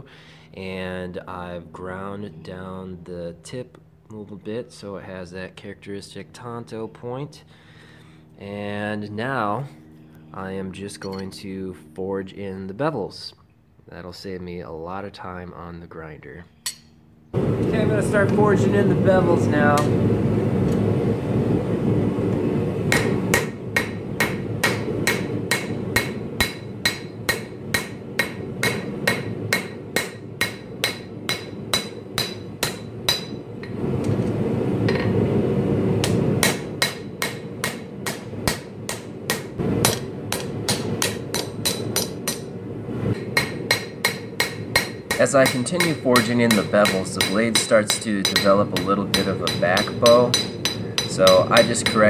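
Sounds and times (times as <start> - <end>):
hammer striking metal on anvil: 11.0 - 11.4, 16.6 - 17.0, 22.9 - 33.8, 36.0 - 42.5, 43.2 - 52.0
forge roaring: 38.3 - 43.7.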